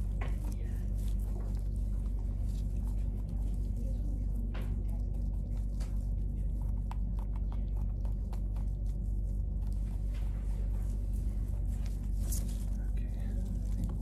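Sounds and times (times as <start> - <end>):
small wet clicks of skinning: 0.0 - 10.4
steady low hum: 0.0 - 14.0.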